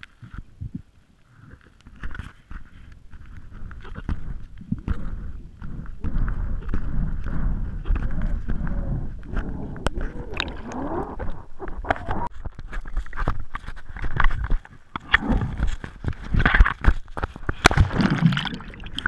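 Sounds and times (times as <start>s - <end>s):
muffled underwater rush: 4.3s - 12.4s, 17.7s - 19.0s.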